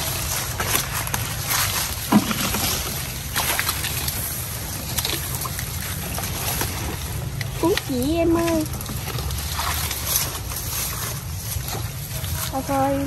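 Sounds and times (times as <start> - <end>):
dry leaves rustling and crackling: 0.0 - 13.0.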